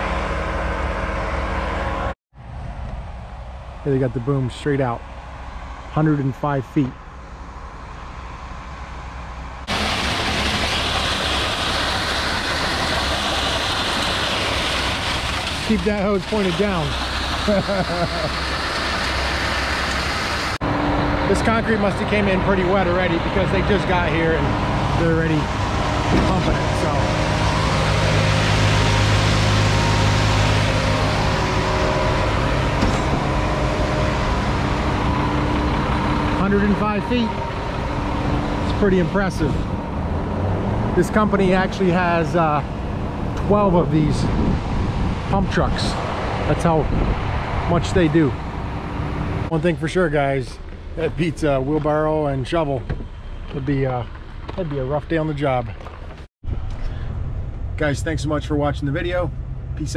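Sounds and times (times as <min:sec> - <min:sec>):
truck engine rumbling: 0:00.0 - 0:59.9.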